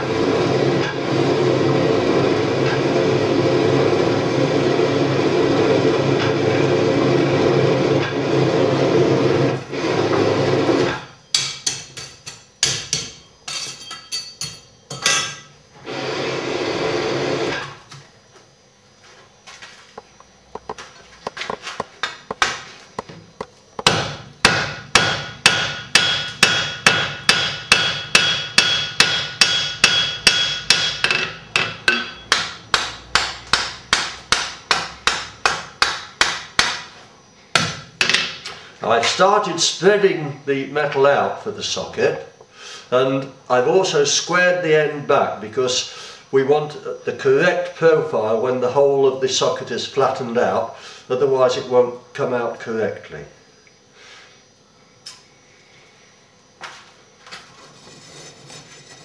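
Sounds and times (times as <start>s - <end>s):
hammer striking iron on anvil: 11.3s - 15.5s, 23.8s - 36.9s, 37.6s - 38.4s.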